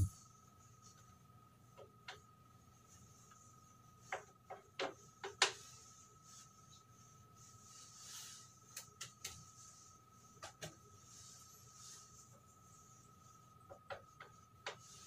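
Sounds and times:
faint high-pitched hum: 0:00.0 - 0:04.2.

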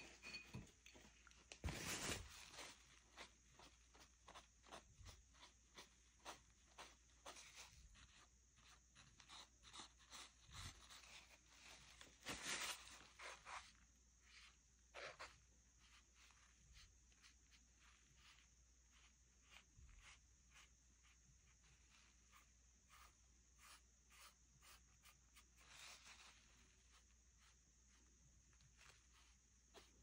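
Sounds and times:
paper towel rustling on canvas: 0:01.0 - 0:08.7, 0:10.1 - 0:20.7.

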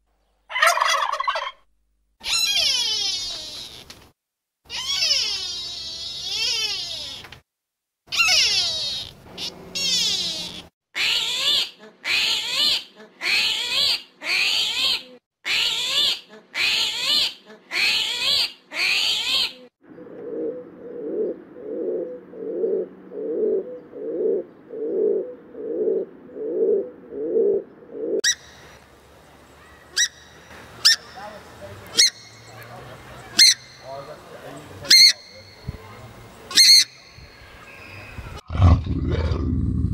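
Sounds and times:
high squeaky animal calls: 0:02.2 - 0:03.9, 0:04.7 - 0:07.3, 0:08.1 - 0:19.7
pigeons cooing: 0:19.9 - 0:28.2.

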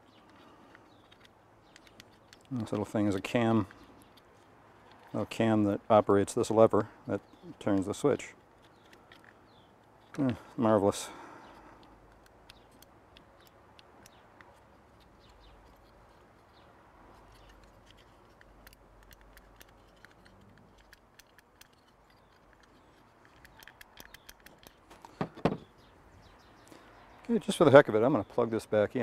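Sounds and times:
plastic parts clicking: 0:00.0 - 0:05.4, 0:07.1 - 0:16.6, 0:17.2 - 0:25.9
parts knocking on table: 0:25.2 - 0:25.7.

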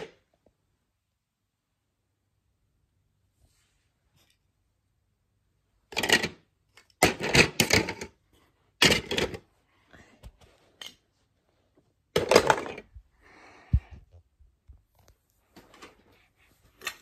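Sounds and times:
plastic bricks clattering into container: 0:05.9 - 0:06.4, 0:12.2 - 0:12.9.

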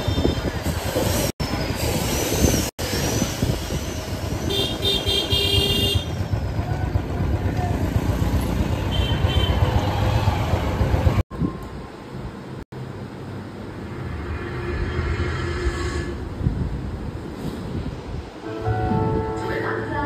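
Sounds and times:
road and traffic noise: 0:00.0 - 0:20.0
motorcycle engine running: 0:04.3 - 0:11.1
vehicle horn honking: 0:04.5 - 0:06.2, 0:08.8 - 0:09.7.

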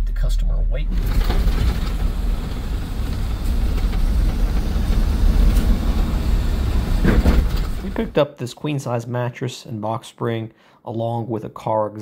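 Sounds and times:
van engine and road drone: 0:00.3 - 0:08.2.

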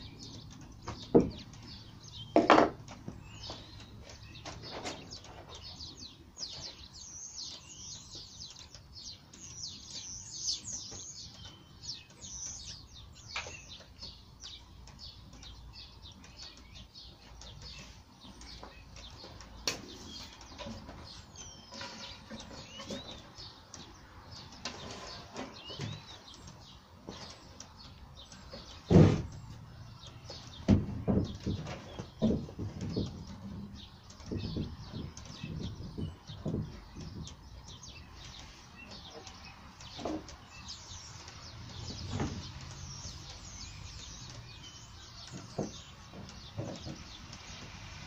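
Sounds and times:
small birds chirping: 0:00.0 - 0:48.0
plywood panels knocking: 0:00.8 - 0:01.7, 0:02.3 - 0:03.6, 0:28.5 - 0:29.5, 0:30.3 - 0:33.8, 0:45.3 - 0:47.1.

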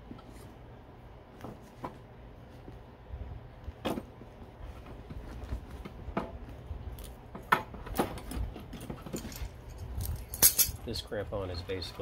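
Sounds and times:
crampon metal clinking: 0:09.1 - 0:10.8.

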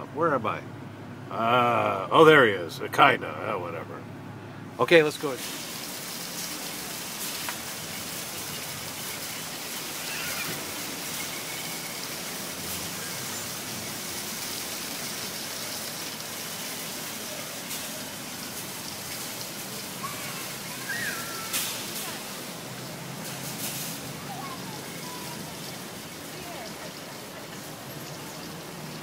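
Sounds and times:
outdoor ambient hiss: 0:00.0 - 0:29.0
faint distant voices: 0:16.6 - 0:29.0.

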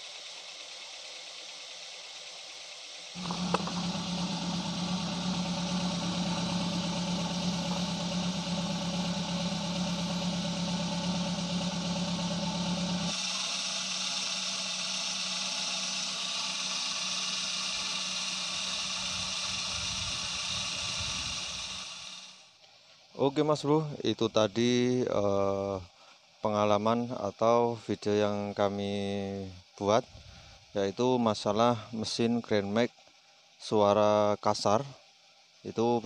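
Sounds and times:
car engine idling: 0:00.1 - 0:22.2.

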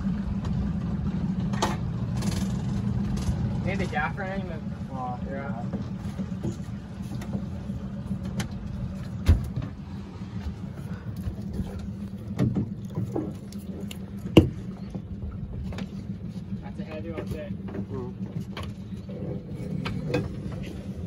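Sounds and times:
boat engine idling: 0:00.0 - 0:21.0
knocks on the boat: 0:09.2 - 0:09.8, 0:14.3 - 0:14.8.

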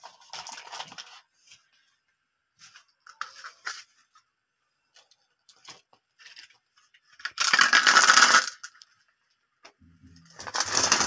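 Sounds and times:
marbles clattering together: 0:07.2 - 0:08.9, 0:10.4 - 0:11.0.

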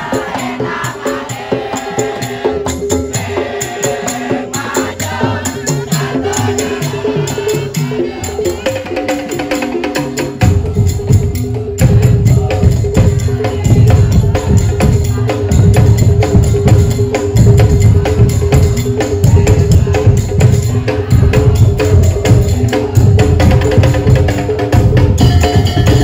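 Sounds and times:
deep bass drums beating: 0:10.4 - 0:26.0.

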